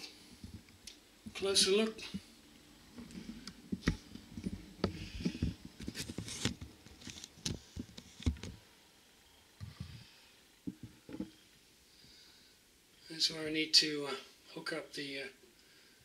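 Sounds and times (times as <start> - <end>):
rustling: 2.9 - 8.6
handling knocks and taps: 10.7 - 11.3.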